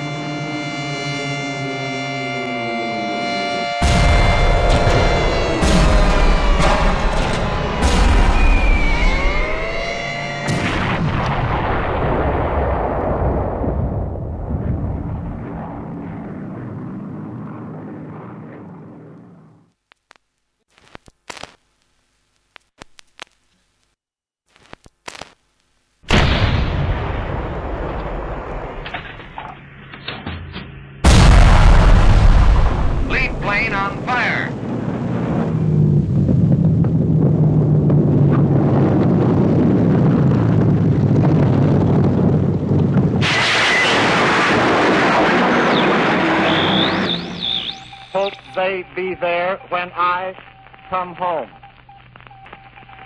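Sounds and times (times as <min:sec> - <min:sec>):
low rumbling drone: 0:00.0 - 0:19.6
artillery gun blast: 0:03.8 - 0:16.2, 0:26.1 - 0:29.5, 0:31.0 - 0:35.6, 0:37.8 - 0:48.2.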